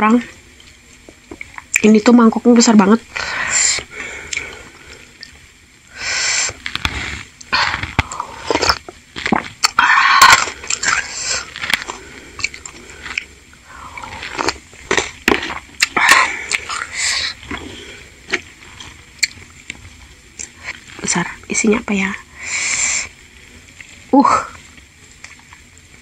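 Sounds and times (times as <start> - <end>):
chewing: 6.5 - 21.1.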